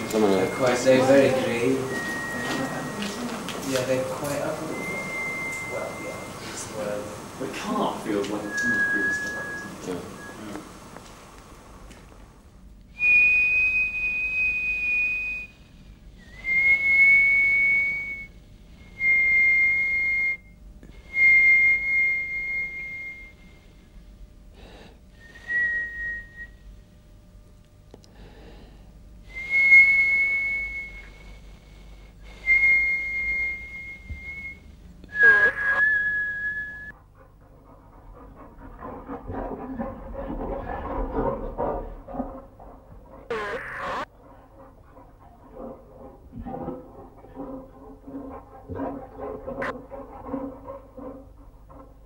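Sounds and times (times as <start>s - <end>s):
high breathy whistle tones: 0.0s - 3.4s, 4.5s - 6.9s, 8.4s - 10.6s, 12.9s - 23.7s, 25.2s - 26.6s, 29.3s - 37.0s.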